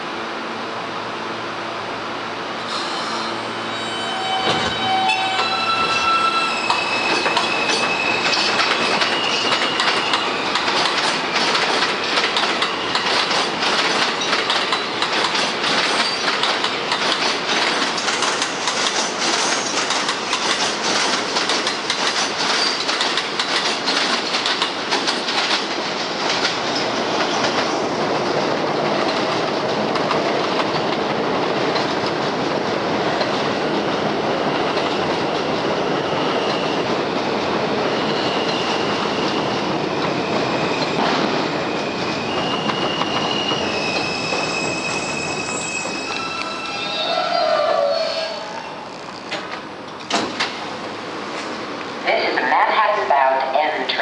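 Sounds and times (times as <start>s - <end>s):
train rumble: 0.0s - 54.0s
train wheels clattering: 6.6s - 32.4s, 34.6s - 46.8s.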